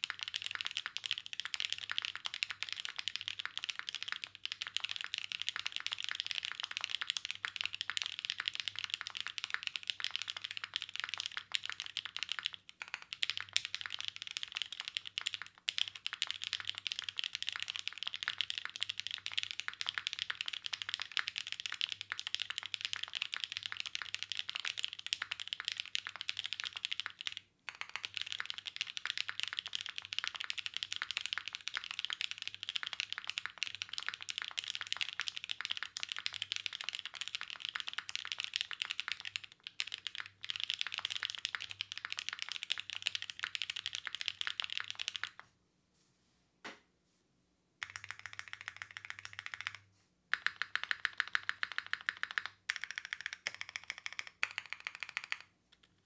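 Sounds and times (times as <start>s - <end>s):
fast typing on mechanical keyboard: 0.0s - 45.4s, 47.8s - 56.0s.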